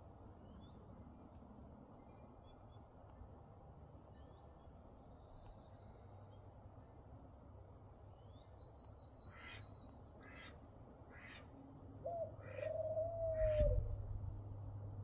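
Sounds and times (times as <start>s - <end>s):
harsh caw-like bird calls: 9.3s - 11.4s, 12.1s - 13.9s
low steady rumble: 12.9s - 15.0s.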